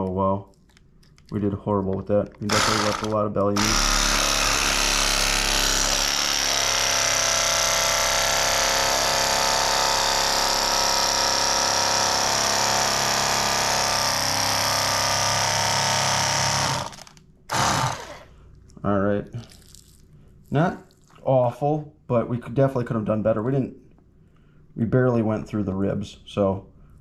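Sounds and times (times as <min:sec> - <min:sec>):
electric fillet knife whining: 0:02.5 - 0:18.3.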